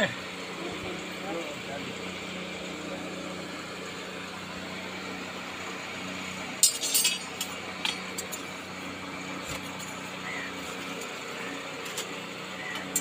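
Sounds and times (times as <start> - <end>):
metal rods clinking: 6.6 - 8.5, 12.7 - 13.0.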